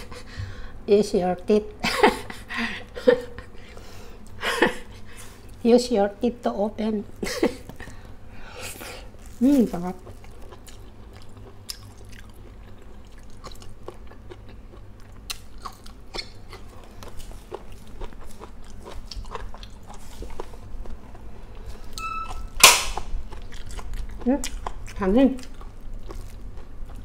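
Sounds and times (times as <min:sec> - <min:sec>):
person chewing food: 0:07.3 - 0:27.0.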